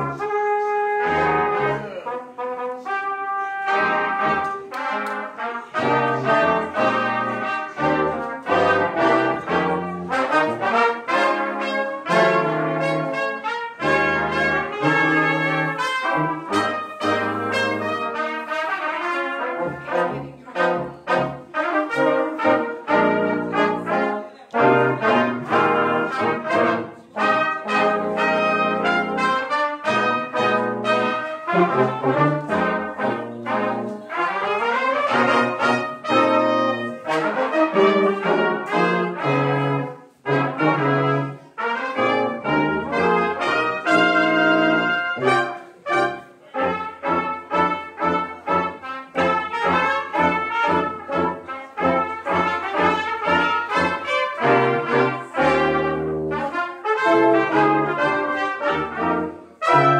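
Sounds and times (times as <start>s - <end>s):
brass ensemble playing: 0.0s - 59.9s.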